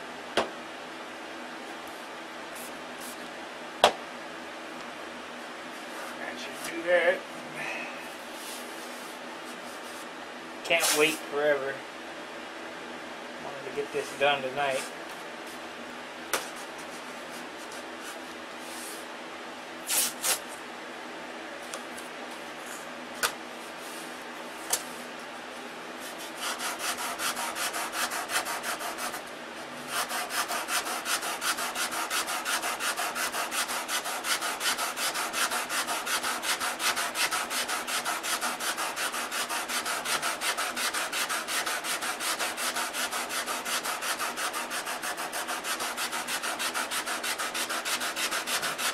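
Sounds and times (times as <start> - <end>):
sandpaper strokes on wood: 10.8 - 11.2, 26.0 - 29.2, 29.9 - 48.9.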